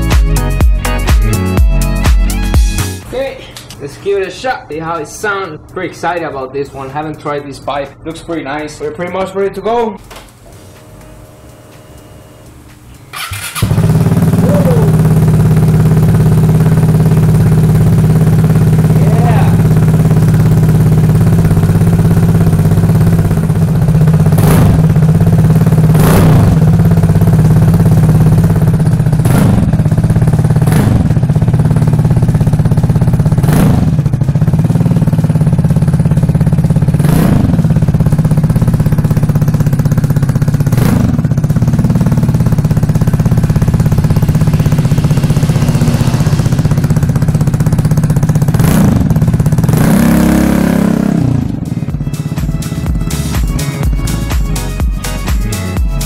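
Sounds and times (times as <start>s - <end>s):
scooter engine idling and revving: 13.0s - 56.0s.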